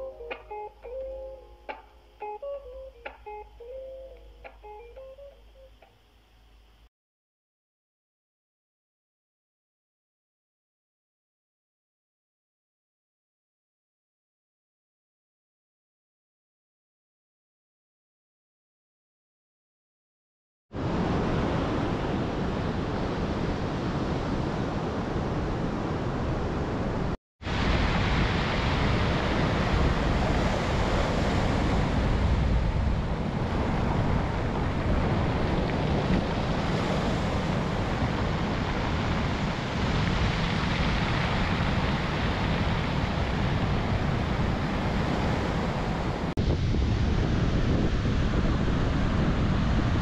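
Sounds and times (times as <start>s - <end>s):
ocean surf rushing: 0.0s - 5.4s, 20.8s - 50.0s
wind buffeting microphone: 20.8s - 50.0s.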